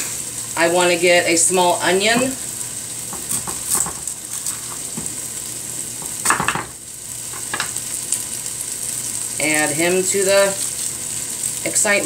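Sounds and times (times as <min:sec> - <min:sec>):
chicken sizzling in a pot: 0:00.0 - 0:12.0.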